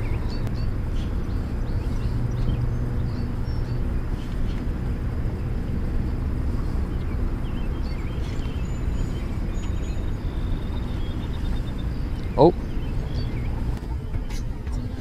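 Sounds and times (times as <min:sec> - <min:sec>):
steady low rumble: 0:00.0 - 0:15.0
bird chirps: 0:06.6 - 0:14.9.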